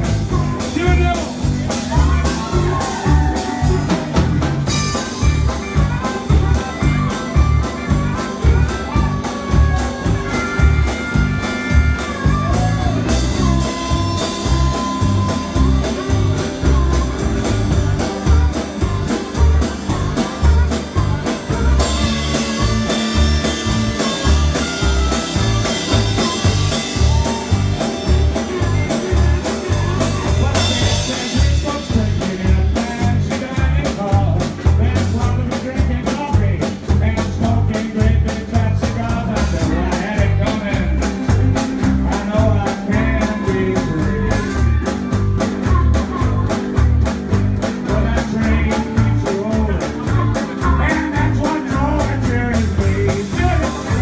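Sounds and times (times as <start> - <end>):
blues band playing: 0.0 - 54.0
electric guitar: 0.0 - 54.0
harmonica: 0.0 - 54.0
steady drum beat: 0.0 - 54.0.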